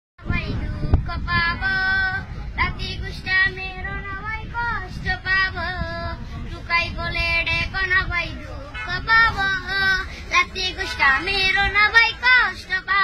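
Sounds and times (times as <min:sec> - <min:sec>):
boy singing unaccompanied: 0:00.2 - 0:13.0
low background noise: 0:00.2 - 0:13.0.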